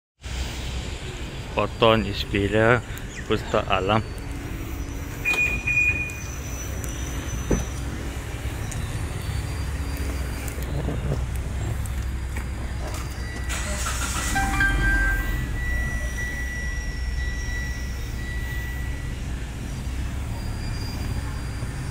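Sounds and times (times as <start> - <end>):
car alarm beep: 5.2 - 7.8, 12.6 - 21.9
low rumble: 14.2 - 16.7.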